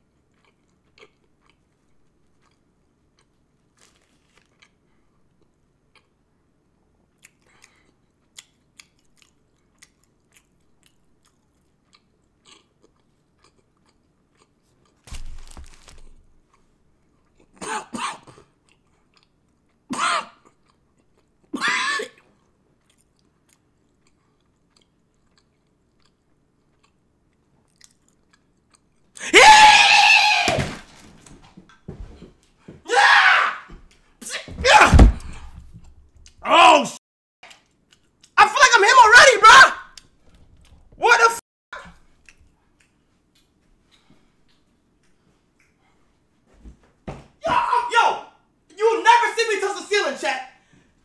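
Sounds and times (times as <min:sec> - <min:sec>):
chewing food: 0:00.0 - 0:17.6, 0:18.3 - 0:21.5, 0:22.2 - 0:29.2, 0:37.4 - 0:38.4, 0:42.0 - 0:46.0
person yelling: 0:21.6 - 0:22.1, 0:29.2 - 0:30.8, 0:32.9 - 0:35.2, 0:36.4 - 0:37.0, 0:38.4 - 0:39.9, 0:41.0 - 0:41.9, 0:47.4 - 0:50.5.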